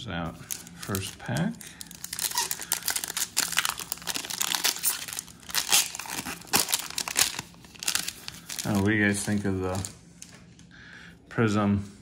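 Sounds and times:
foil pack crinkling: 0:00.4 - 0:10.3.

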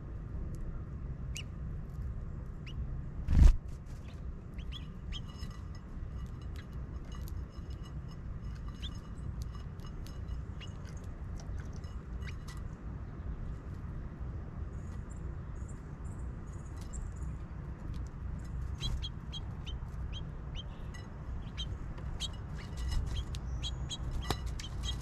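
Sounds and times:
songbirds chirping: 0:00.0 - 0:03.2, 0:03.8 - 0:25.0
low steady rumble: 0:00.0 - 0:25.0.

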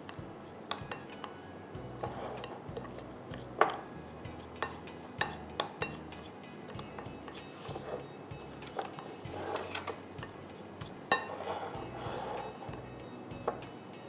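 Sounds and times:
utensil stirring in mixing bowl: 0:02.0 - 0:12.8
utensil clinking against bowl: 0:11.1 - 0:12.7.

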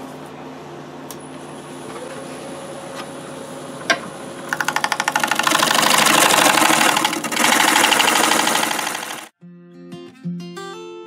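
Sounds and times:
gouge cutting spinning wood: 0:04.5 - 0:09.3
wood lathe humming: 0:04.5 - 0:09.3.

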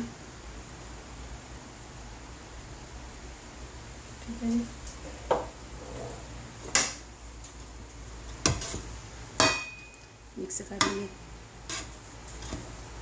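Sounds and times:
rice being stirred: 0:08.0 - 0:13.0.

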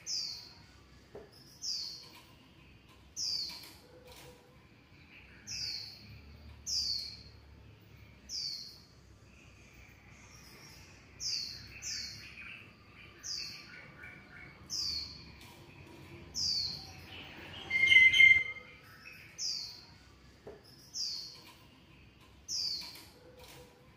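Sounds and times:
animal chirping: 0:17.6 - 0:18.8.

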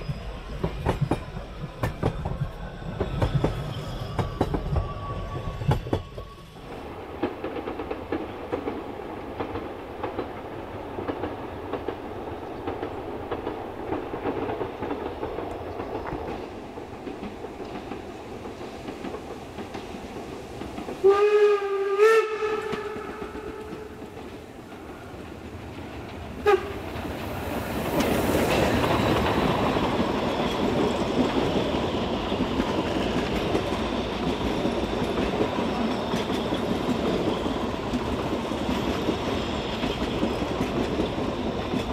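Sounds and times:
train coaches rolling: 0:00.0 - 0:41.9
steam whistle blasts: 0:21.0 - 0:23.8, 0:26.4 - 0:26.8.

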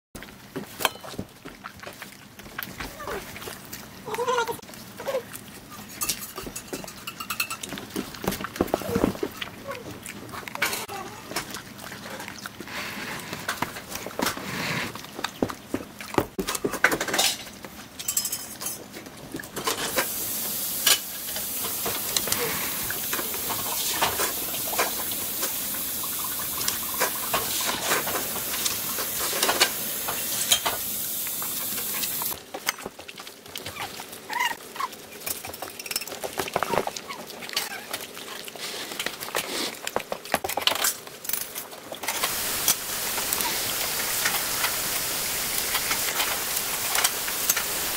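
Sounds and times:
dog chewing and crunching: 0:00.2 - 0:06.6, 0:07.6 - 0:16.6, 0:31.9 - 0:42.4
teeth clinking on pan: 0:05.9 - 0:07.7
steady hiss: 0:19.9 - 0:32.4, 0:42.1 - 0:47.9.

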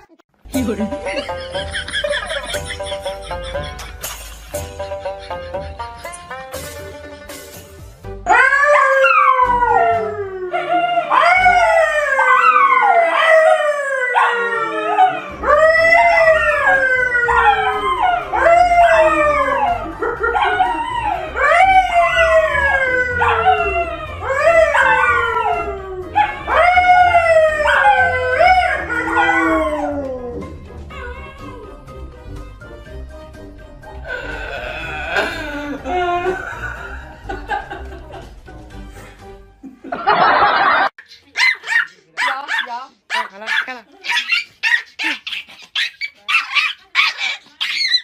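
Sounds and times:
dog howling: 0:08.3 - 0:31.8
man howling: 0:34.1 - 0:36.9.

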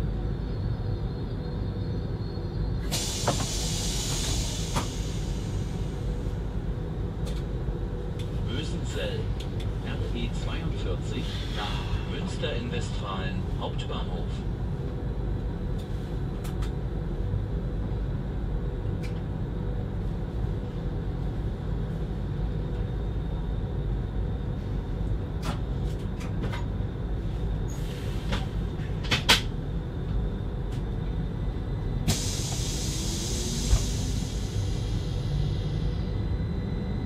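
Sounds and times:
train rumbling: 0:00.0 - 0:37.0
hiss: 0:02.8 - 0:06.2, 0:32.1 - 0:35.8.

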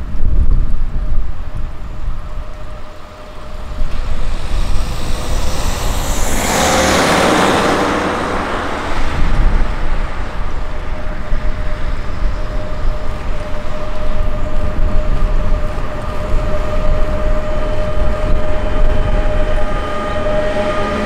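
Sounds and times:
electric locomotive hum and rumble: 0:00.0 - 0:21.0
road vehicle passing: 0:01.7 - 0:21.0.

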